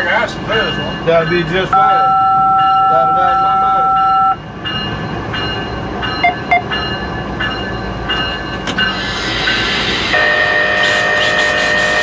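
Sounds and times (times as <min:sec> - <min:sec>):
air hiss: 0:08.9 - 0:12.0.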